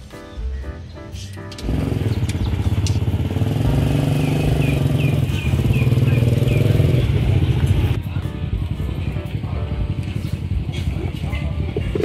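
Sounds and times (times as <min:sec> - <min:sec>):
small motorcycle engine running: 0:01.6 - 0:08.0.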